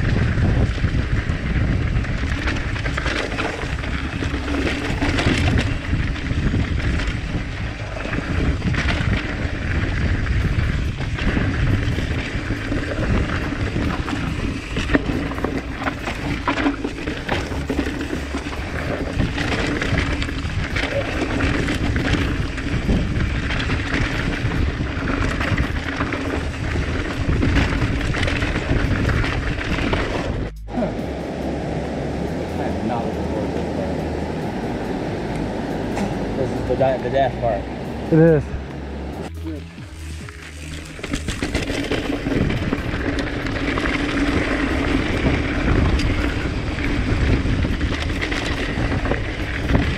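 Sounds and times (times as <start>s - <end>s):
bike rattling over bumps: 0.0s - 49.9s
tyres running over dirt: 0.0s - 49.9s
wind buffeting microphone: 0.0s - 49.9s.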